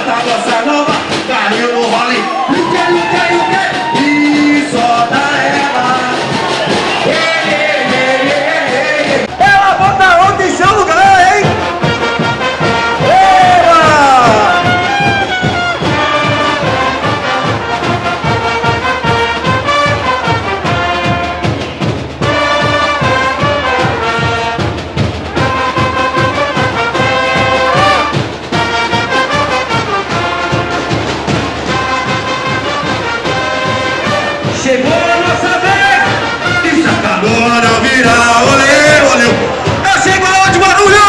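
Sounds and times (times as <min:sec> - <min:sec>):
brass band trumpets and trombones: 0:00.0 - 0:41.0
steady drum beat: 0:00.0 - 0:41.0.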